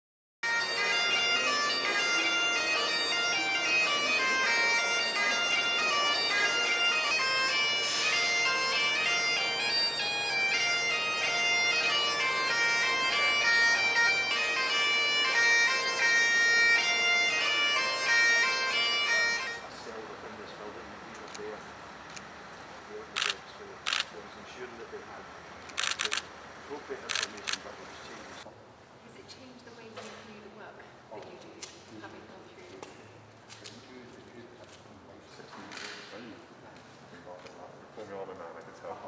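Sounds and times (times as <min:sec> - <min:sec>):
bagpipe chanter melody: 0:00.4 - 0:20.0
bagpipe drone: 0:00.4 - 0:20.8.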